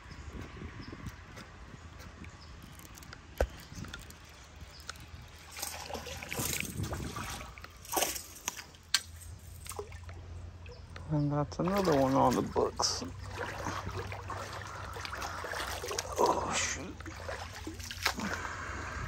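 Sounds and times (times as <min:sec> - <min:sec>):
water splashing at shore: 0:05.4 - 0:08.8, 0:11.6 - 0:18.8.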